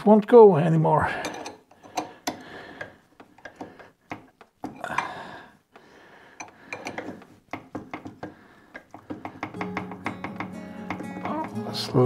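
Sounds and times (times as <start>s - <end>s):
wrench clinking on metal: 1.1s - 2.4s.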